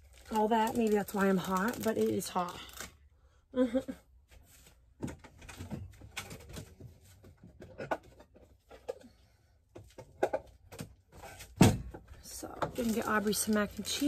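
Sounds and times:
rustling of objects moved: 0:04.2 - 0:14.0.

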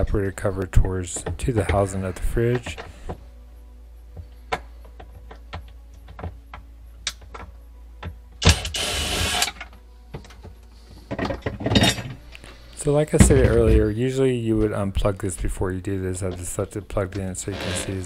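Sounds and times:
cordless driver running: 0:08.5 - 0:09.5, 0:17.5 - 0:18.0.

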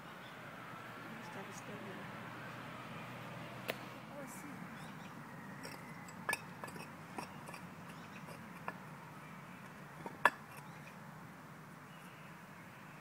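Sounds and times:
hand tool clinking on stone: 0:05.6 - 0:08.8.

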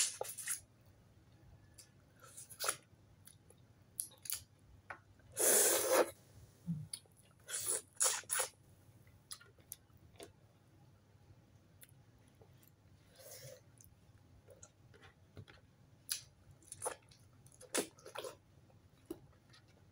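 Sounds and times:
wet chewing and sucking: 0:07.0 - 0:08.6.

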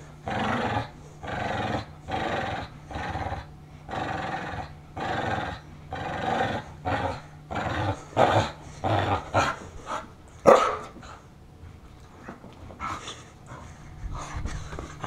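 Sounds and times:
dog growling in play: 0:00.0 - 0:11.2.

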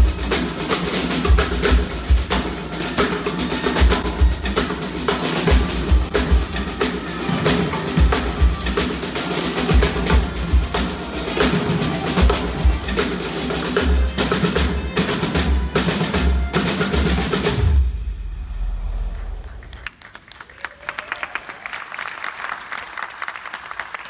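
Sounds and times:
marching drums playing: 0:00.0 - 0:18.2
audience applause: 0:19.1 - 0:24.0.

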